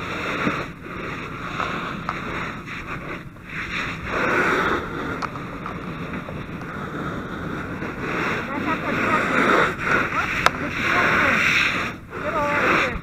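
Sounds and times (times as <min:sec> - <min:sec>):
fire hose spraying water: 0:00.0 - 0:13.0.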